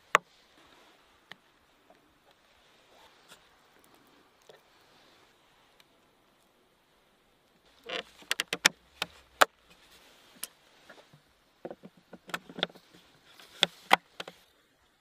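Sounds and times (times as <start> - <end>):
wooden box clacking: 7.8 - 9.5.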